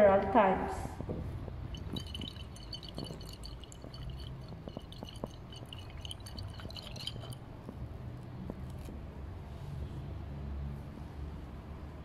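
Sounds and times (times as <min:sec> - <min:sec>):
liquid sloshing in glass flask: 0:01.0 - 0:07.8.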